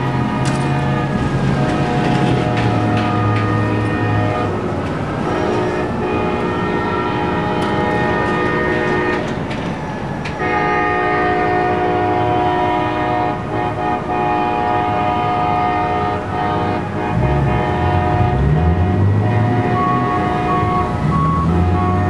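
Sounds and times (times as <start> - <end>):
locomotive air horn: 0.0 - 9.4, 10.4 - 22.0.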